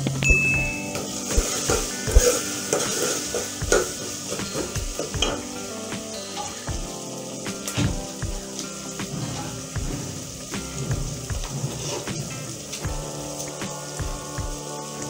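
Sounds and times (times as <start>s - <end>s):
food sizzling in a pot: 0.0s - 15.0s
metal spoon scraping and knocking pot: 0.9s - 5.5s.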